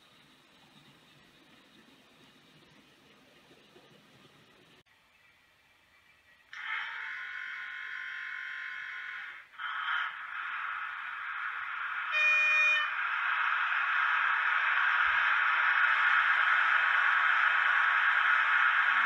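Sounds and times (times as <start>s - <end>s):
model locomotive running noise: 0.0s - 4.8s, 6.5s - 19.0s
steady buzzing tone: 6.6s - 19.0s.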